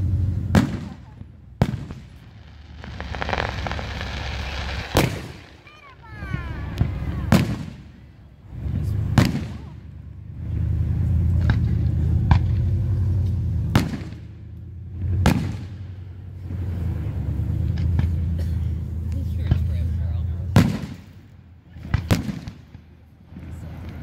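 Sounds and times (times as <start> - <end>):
low rolling rumble: 0.0 - 17.7
firework shells bursting: 0.6 - 8.0.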